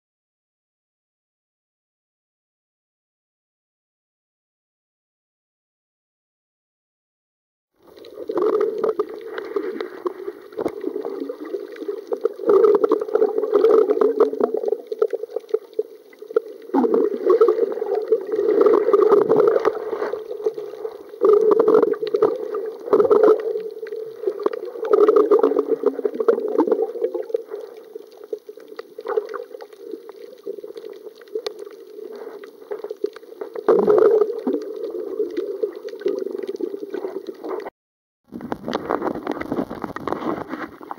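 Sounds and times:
underwater gurgling wash: 0:07.8 - 0:37.7, 0:38.3 - 0:40.9.

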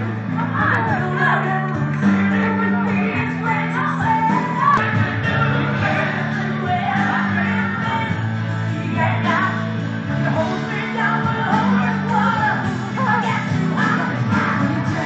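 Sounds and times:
recorded song with bass: 0:00.0 - 0:15.0
man singing: 0:04.6 - 0:08.2.

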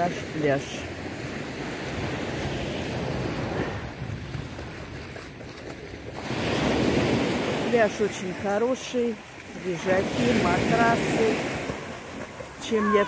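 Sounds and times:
surf on pebble beach: 0:00.0 - 0:05.4, 0:06.0 - 0:13.0
wind buffeting microphone: 0:01.0 - 0:07.7.

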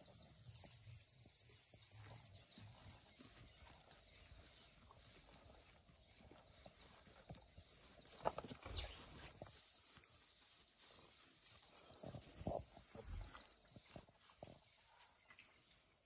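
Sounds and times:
high insect drone: 0:00.0 - 0:16.0
steps in dry grass: 0:01.6 - 0:15.0.

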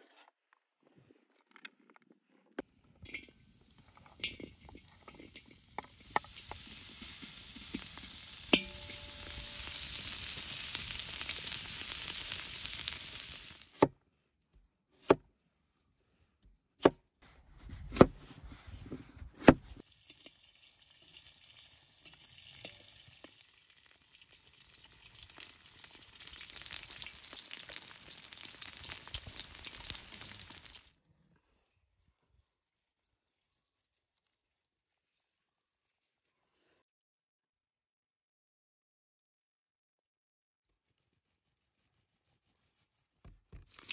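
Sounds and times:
fat sizzling in a pot: 0:03.1 - 0:13.8, 0:19.8 - 0:31.0, 0:43.6 - 0:43.9.

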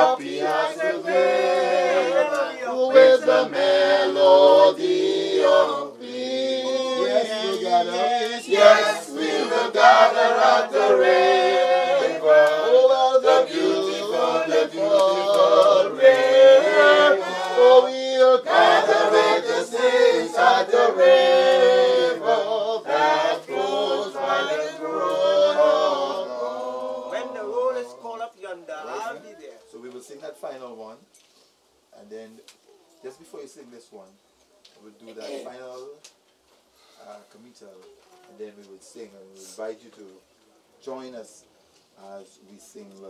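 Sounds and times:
group singing a hymn: 0:00.0 - 0:29.2.

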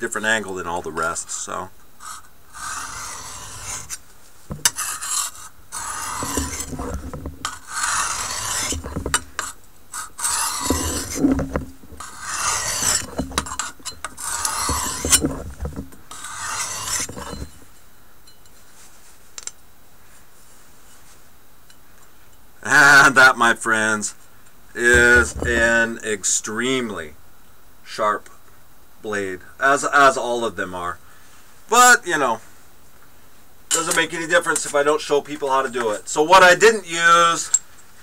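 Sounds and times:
knife blade scraping on sharpener: 0:02.0 - 0:04.0, 0:04.6 - 0:15.4, 0:16.1 - 0:17.5.

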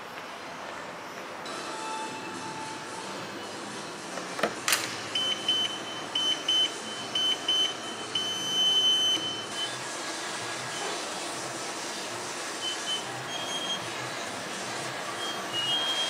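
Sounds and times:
treadmill console beeps: 0:05.1 - 0:11.2, 0:12.6 - 0:14.1, 0:15.1 - 0:16.0.

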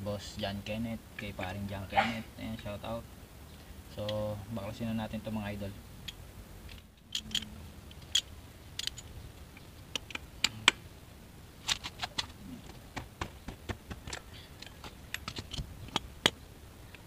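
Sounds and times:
socket and wrench clinking: 0:07.1 - 0:09.1.

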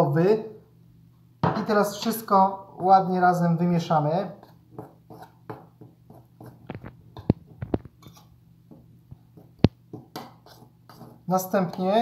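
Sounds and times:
spoon scraping flour in bowl: 0:04.3 - 0:12.0.

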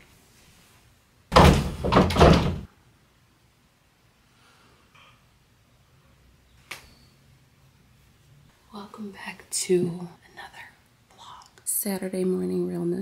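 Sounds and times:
closet doors banging shut: 0:01.3 - 0:02.7.

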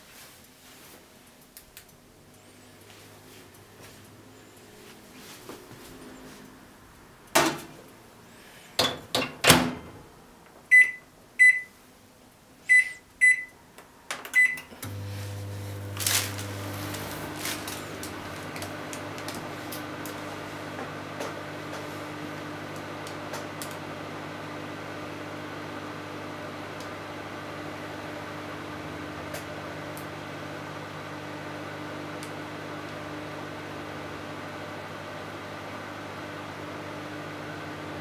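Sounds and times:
microwave door shutting: 0:08.9 - 0:10.0
microwave button beeps: 0:10.7 - 0:11.7, 0:12.7 - 0:13.6, 0:14.4 - 0:14.7
microwave humming: 0:14.3 - 0:38.0.

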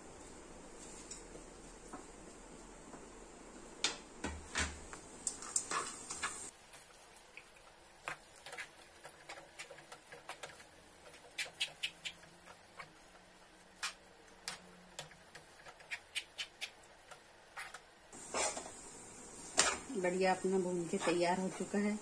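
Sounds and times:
metal spoon scraping pan: 0:08.1 - 0:18.6.

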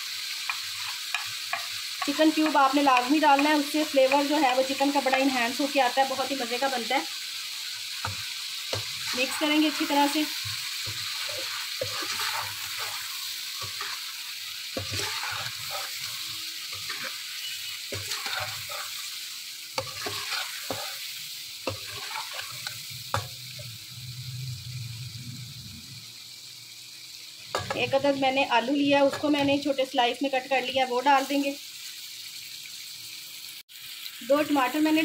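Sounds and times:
chicken sizzling in a pan: 0:00.0 - 0:35.0
metal spoon scraping and clinking on pan: 0:00.4 - 0:05.4, 0:08.0 - 0:14.1, 0:14.8 - 0:17.2, 0:17.8 - 0:19.1, 0:19.8 - 0:23.4.

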